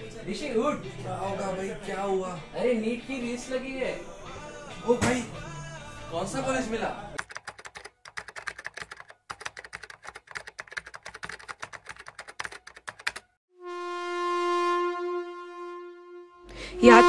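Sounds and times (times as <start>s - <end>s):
rapid keyboard typing: 7.2s - 13.4s.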